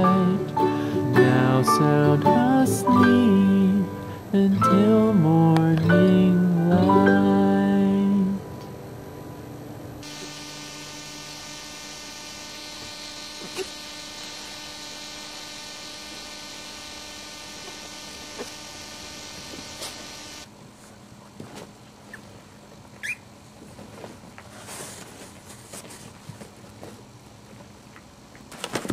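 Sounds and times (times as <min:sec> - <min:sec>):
electrical buzz: 0:09.3 - 0:20.6.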